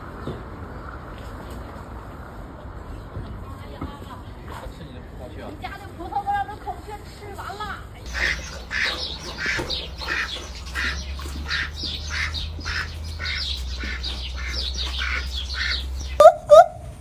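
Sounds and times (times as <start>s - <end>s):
duck quacking: 8.1s - 16.8s.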